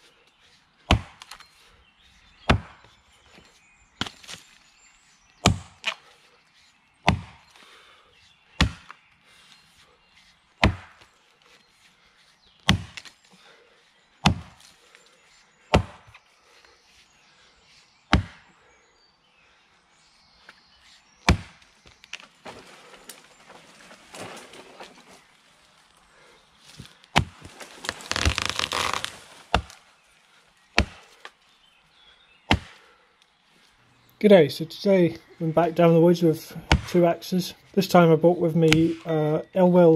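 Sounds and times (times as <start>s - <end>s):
axe chopping into tree: 0.9s - 1.4s, 2.4s - 2.9s, 4.0s - 4.5s, 5.4s - 6.0s, 7.0s - 7.5s, 8.6s - 9.0s, 10.6s - 11.1s, 12.6s - 13.2s, 14.2s - 14.7s, 15.7s - 16.2s, 18.1s - 18.5s, 21.2s - 22.3s, 26.8s - 29.8s, 30.8s - 31.4s, 32.5s - 32.8s, 36.6s - 37.0s.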